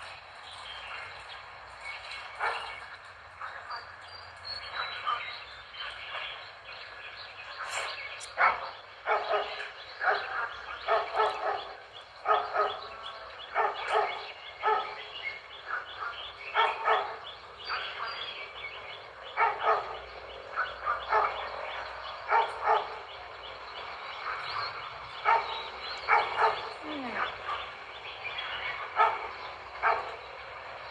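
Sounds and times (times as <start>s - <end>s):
dog barking: 2.4s - 2.8s, 8.4s - 12.9s, 13.5s - 15.1s, 15.7s - 18.0s, 19.4s - 20.0s, 20.6s - 21.6s, 22.3s - 23.1s, 24.3s - 27.7s, 28.8s - 30.2s.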